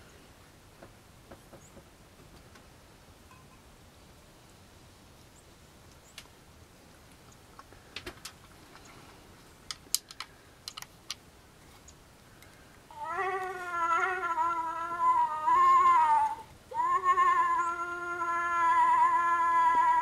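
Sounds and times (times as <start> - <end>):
sharp clicks: 9.6 - 11.2
nasal moose call: 12.9 - 20.0.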